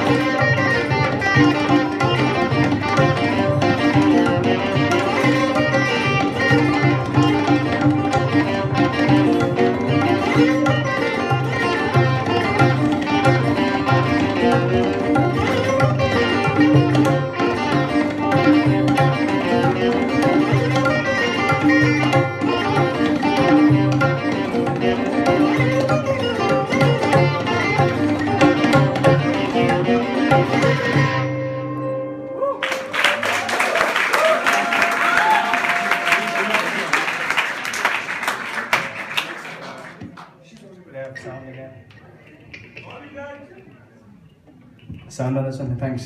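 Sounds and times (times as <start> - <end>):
sarod: 0.0 - 32.6
electric guitar: 0.0 - 33.5
audience applause: 32.6 - 40.4.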